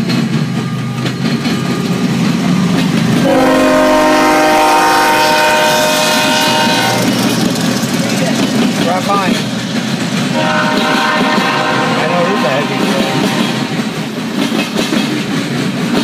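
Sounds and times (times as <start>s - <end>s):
diesel locomotives rumbling: 0.0s - 16.0s
locomotive air horn blast: 3.2s - 7.3s, 10.3s - 14.0s.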